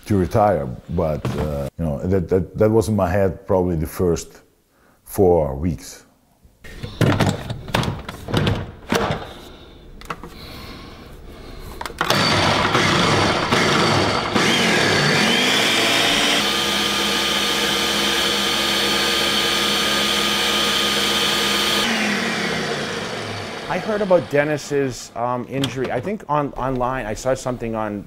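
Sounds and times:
blender motor whining: 12.0 - 24.6.

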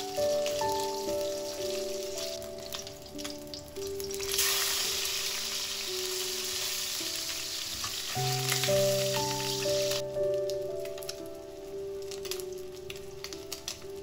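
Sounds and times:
fish frying in hot oil: 0.0 - 14.0.

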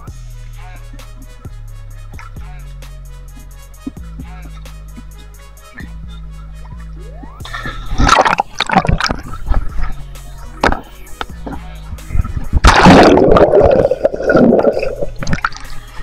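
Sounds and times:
music with bass line: 0.0 - 16.0
sea water sloshing: 7.6 - 16.0
loud rushing splash: 12.6 - 15.6.

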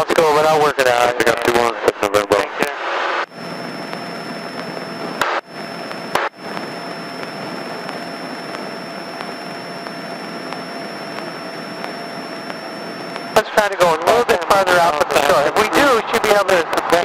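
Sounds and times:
intercom clicks: 3.2 - 14.5
light airplane engine and propeller: 3.3 - 17.0.

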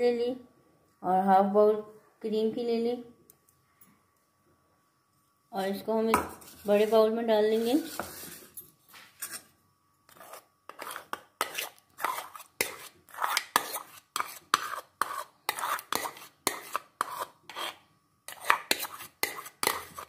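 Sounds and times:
metal spoon scraping bowl: 10.1 - 20.0.

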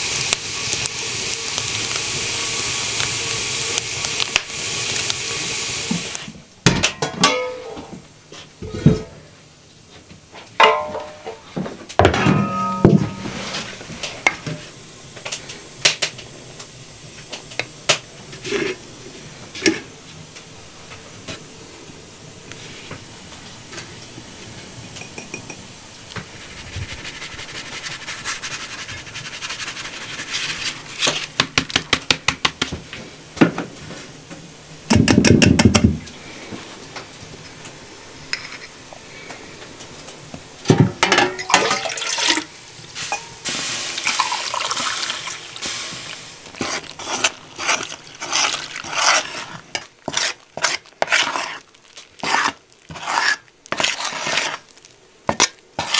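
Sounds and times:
dishes knocking and clinking: 6.7 - 8.0, 8.6 - 9.2, 10.6 - 11.4, 12.0 - 13.4, 24.9 - 25.6, 34.9 - 36.0, 40.7 - 42.0
basin set down: 10.6 - 14.6, 40.7 - 42.5.

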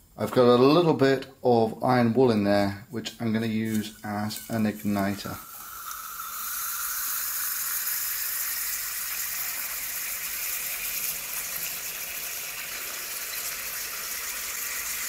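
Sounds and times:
liquid oxygen boiling: 3.9 - 15.0.

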